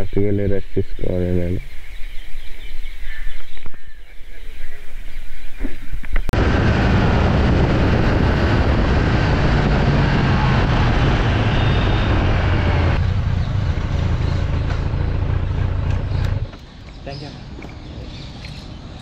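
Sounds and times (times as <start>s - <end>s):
wind rushing over microphone: 5.2s - 15.3s
motorcycle engine running: 6.4s - 16.7s.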